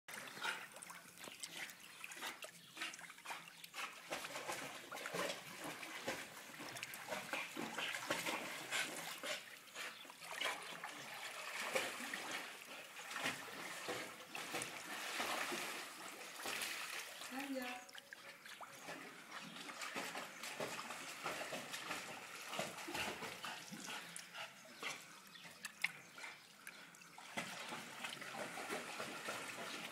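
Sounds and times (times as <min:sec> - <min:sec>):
dog splashing in water: 0:00.1 - 0:24.2, 0:27.2 - 0:29.9.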